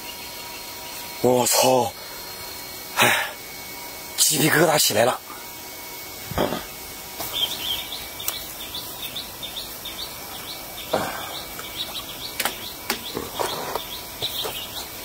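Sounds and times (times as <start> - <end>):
bird chirping high notes: 7.3 - 14.9.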